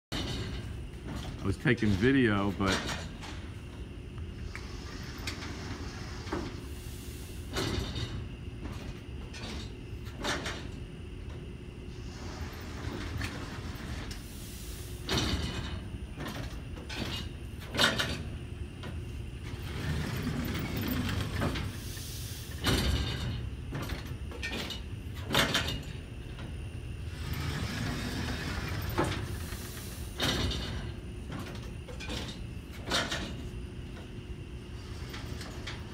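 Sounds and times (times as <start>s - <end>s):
machine clunk: 0.1s - 3.8s, 7.5s - 11.5s, 15.0s - 21.9s, 22.5s - 34.2s
steady machine hum: 0.1s - 35.9s
machine hissing: 4.4s - 8.2s, 11.9s - 18.3s, 19.4s - 25.9s, 27.0s - 33.5s.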